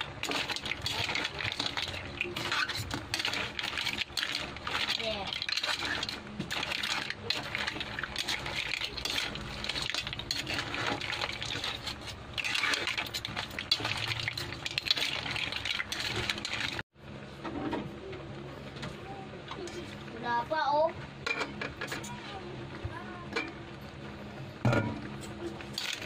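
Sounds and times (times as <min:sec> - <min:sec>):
liquid sloshing: 0:00.0 - 0:16.8.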